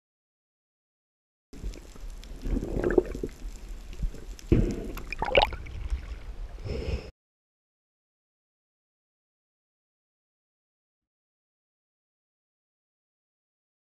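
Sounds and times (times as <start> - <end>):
sea water sloshing and gurgling: 1.6 - 6.6.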